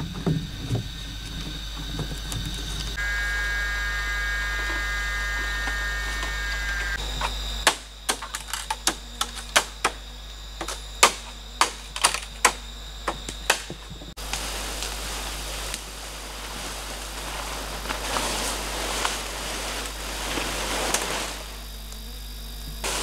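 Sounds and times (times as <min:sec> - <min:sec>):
forest hiss: 0:00.0 - 0:23.0
bamboo poles knocking: 0:07.1 - 0:10.0, 0:10.6 - 0:14.1
faint rustling: 0:14.2 - 0:21.7.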